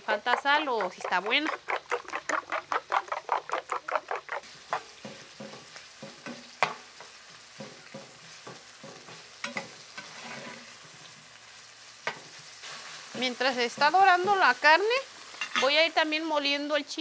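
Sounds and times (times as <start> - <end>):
fork beating eggs in a bowl: 0.0 - 6.4
spoon scraping a pot: 0.0 - 11.2, 15.3 - 15.8
meat sizzling in oil: 0.0 - 17.0.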